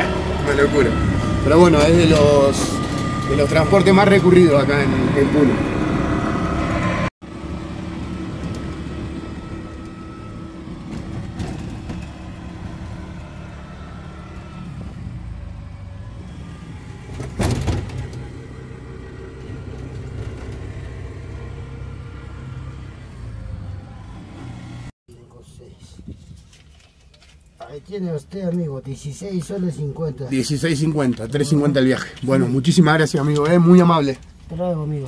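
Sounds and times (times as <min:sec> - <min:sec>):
small motorcycle engine running: 0:00.0 - 0:24.9.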